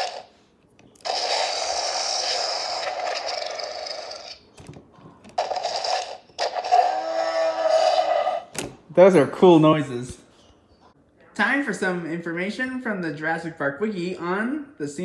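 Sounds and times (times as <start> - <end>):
electronic dinosaur toy calls: 1.0 - 4.4, 5.4 - 8.5.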